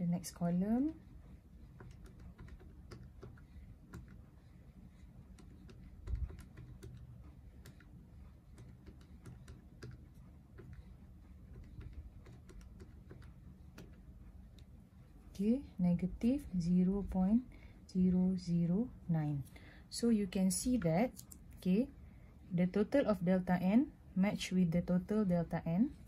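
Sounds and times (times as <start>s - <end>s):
calculator keys clicking: 1.8s - 4.3s, 5.3s - 14.0s.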